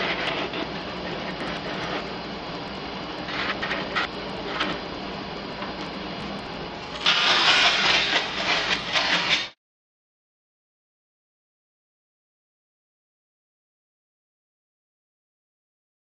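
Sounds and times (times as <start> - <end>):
gouge scraping spinning wood: 0.0 - 2.2, 3.2 - 4.8, 6.9 - 9.6
sandpaper rasping on spinning wood: 7.0 - 9.5.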